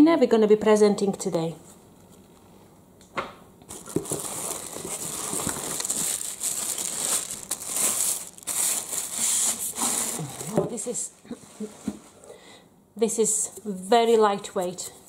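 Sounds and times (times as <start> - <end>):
plastic film crinkling: 3.7 - 10.6.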